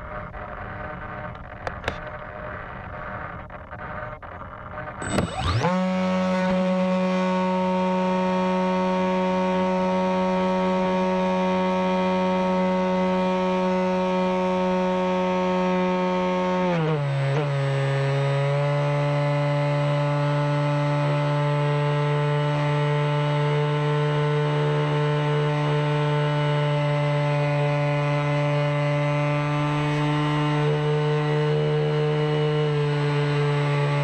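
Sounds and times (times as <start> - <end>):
drone propellers buzzing: 0.0 - 11.3.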